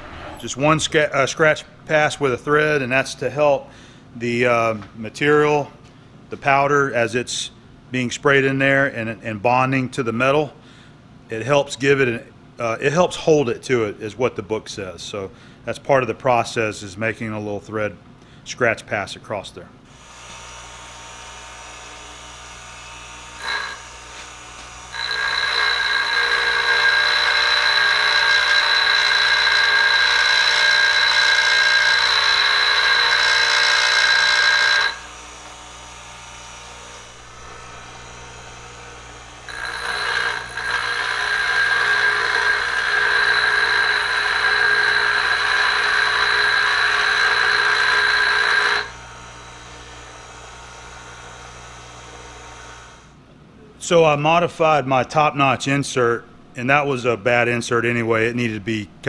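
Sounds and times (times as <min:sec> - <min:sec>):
grinder motor humming: 0:21.5 - 0:52.8
metal grinding with high ring: 0:23.4 - 0:24.2, 0:24.8 - 0:35.2, 0:36.6 - 0:49.2.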